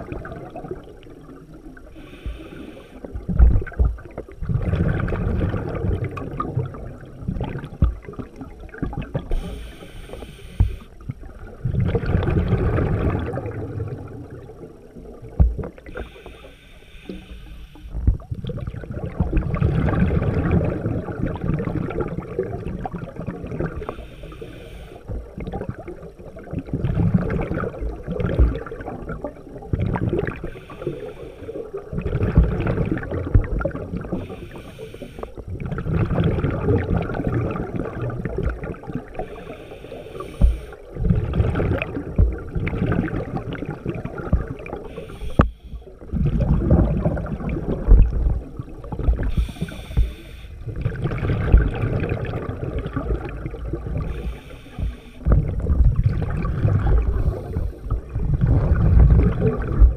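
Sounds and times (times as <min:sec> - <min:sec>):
exhaled bubbles gushing: 0:00.0 - 0:16.4, 0:17.9 - 0:59.9
diver inhaling through regulator: 0:02.0 - 0:03.1, 0:09.3 - 0:11.0, 0:15.9 - 0:18.0, 0:23.8 - 0:25.1, 0:30.4 - 0:31.7, 0:34.1 - 0:35.4, 0:39.2 - 0:40.9, 0:44.8 - 0:45.9, 0:49.2 - 0:50.7, 0:54.0 - 0:55.4, 0:56.9 - 0:58.0.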